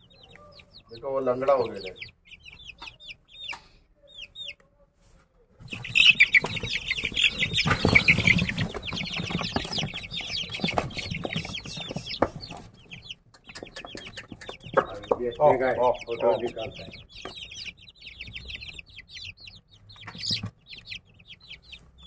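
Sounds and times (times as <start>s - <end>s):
chicks peeping: 0.0s - 22.0s
wings flapping and scuffling: 5.0s - 15.4s, 16.4s - 22.0s.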